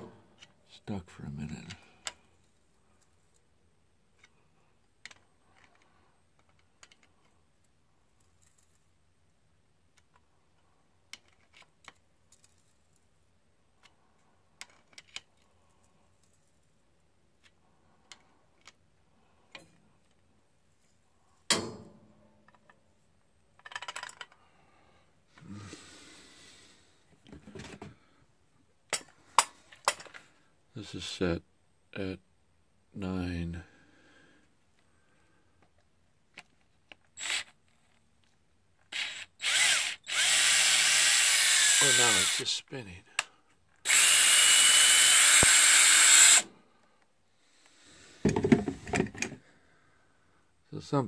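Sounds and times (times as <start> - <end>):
socket wrench working on bolt: 38.9 - 42.4, 43.9 - 46.5.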